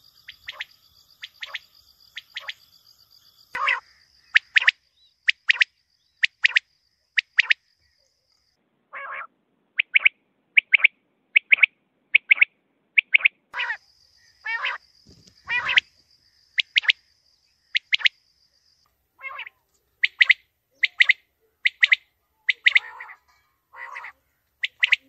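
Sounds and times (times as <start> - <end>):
quail calling: 0.0 - 2.6, 3.6 - 6.6, 8.9 - 16.0, 19.2 - 25.0.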